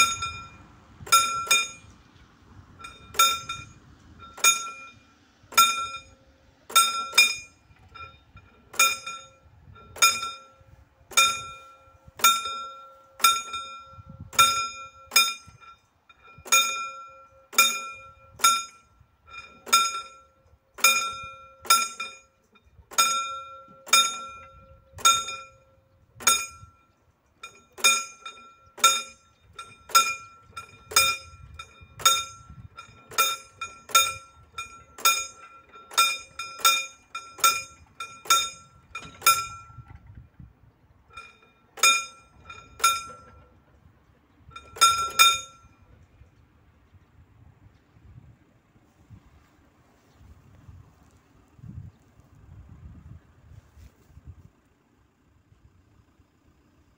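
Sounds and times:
level crossing bell ringing: 0:00.0 - 0:01.9, 0:02.8 - 0:39.9, 0:41.1 - 0:43.6, 0:44.5 - 0:46.0.

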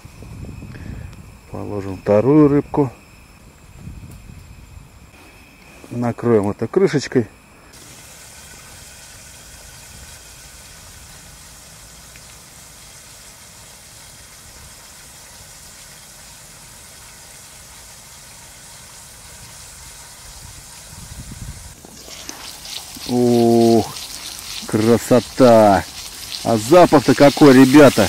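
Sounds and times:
fish sizzling in a pan: 0:07.7 - 0:28.0.

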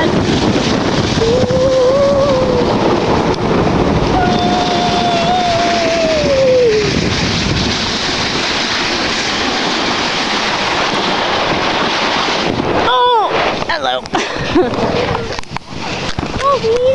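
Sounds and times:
snow tube scraping on snow: 0:00.0 - 0:16.9
wind rushing over microphone: 0:00.0 - 0:16.9
person shouting: 0:04.2 - 0:07.0.

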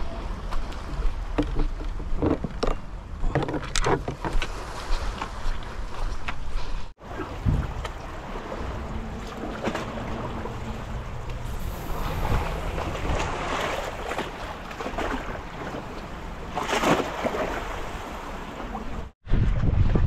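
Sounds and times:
waves lapping against pilings: 0:00.0 - 0:19.2
wind buffeting microphone: 0:07.0 - 0:20.0.

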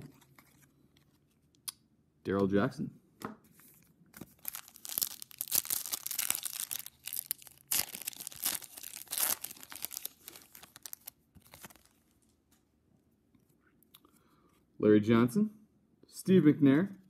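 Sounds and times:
foil wrapper tearing and crinkling: 0:04.2 - 0:12.1.

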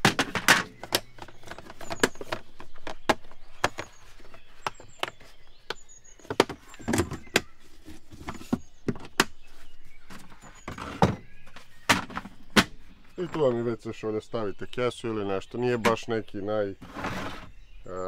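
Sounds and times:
plastic clicks and knocks: 0:00.0 - 0:03.9.

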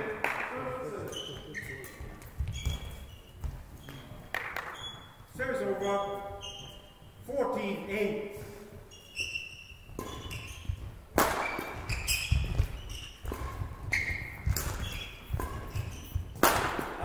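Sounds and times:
racquet hitting shuttlecock: 0:00.0 - 0:05.0, 0:09.6 - 0:17.0
shoes squeaking on court: 0:00.5 - 0:17.0.

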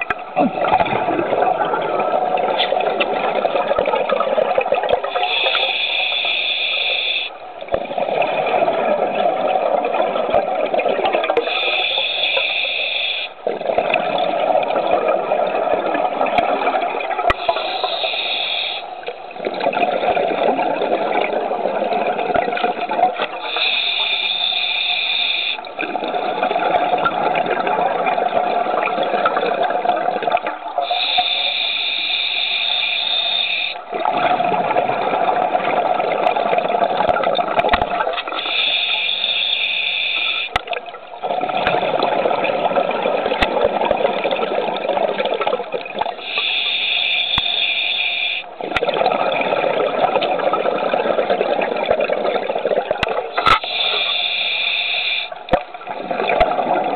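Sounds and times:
exhaled bubbles rushing: 0:00.0 - 0:05.5, 0:07.6 - 0:11.5, 0:13.4 - 0:17.9, 0:19.3 - 0:23.5, 0:25.7 - 0:31.1, 0:33.8 - 0:38.5, 0:40.5 - 0:46.4, 0:48.5 - 0:53.8, 0:55.4 - 0:56.9
regulator hiss on inhale: 0:05.1 - 0:07.4, 0:11.4 - 0:13.4, 0:17.3 - 0:19.2, 0:23.4 - 0:25.7, 0:30.8 - 0:33.8, 0:38.4 - 0:40.6, 0:46.2 - 0:48.5, 0:53.4 - 0:55.4.

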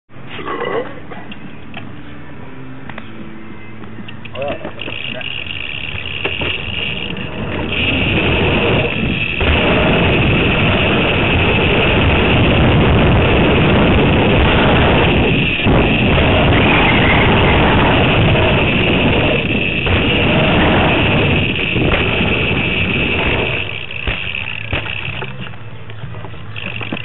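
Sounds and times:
bike tyres rolling on concrete: 0:04.3 - 0:27.0
wind rushing over microphone: 0:07.1 - 0:24.0.

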